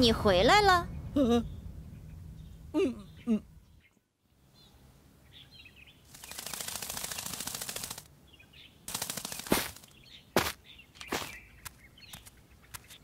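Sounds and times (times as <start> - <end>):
sharp clicks: 6.1 - 8.1, 8.9 - 10.0
small bird chirps: 8.3 - 13.0.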